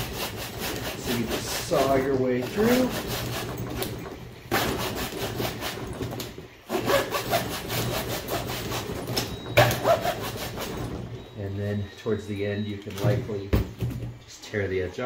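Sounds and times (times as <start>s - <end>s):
hacksaw cutting plastic: 0.0s - 11.4s.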